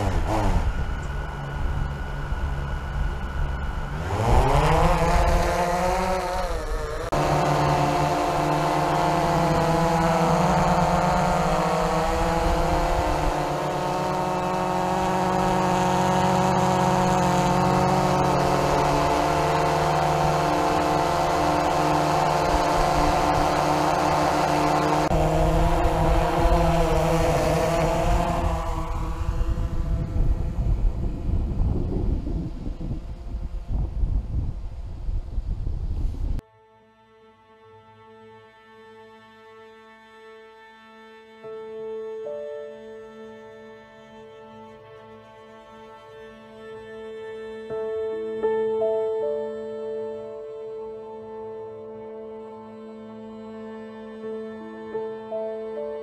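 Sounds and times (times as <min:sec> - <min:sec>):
drone propellers whining: 0:00.0 - 0:36.4.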